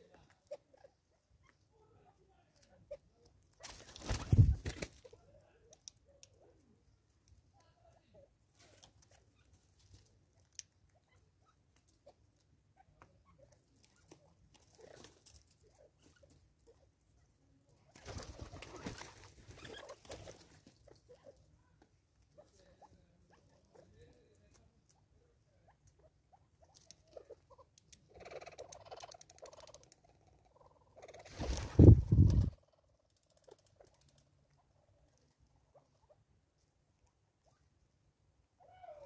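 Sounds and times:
bird wingbeats: 3.6 - 5.0, 31.3 - 32.6
birds pecking on wood: 17.9 - 21.1, 31.2 - 34.3.

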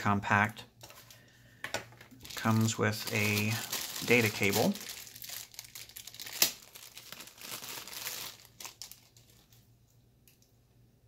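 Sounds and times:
plastic bag crinkling: 2.0 - 9.7.

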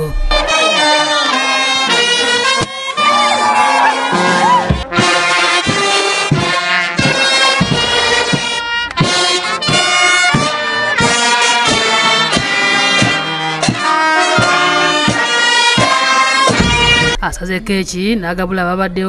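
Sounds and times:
brass horn melody: 0.0 - 17.2
steady drum beat: 2.4 - 17.3.

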